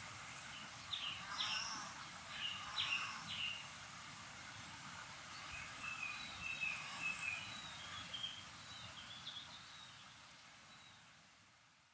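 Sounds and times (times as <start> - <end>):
steady background hiss: 0.0 - 11.9
songbirds chirping: 0.2 - 11.3.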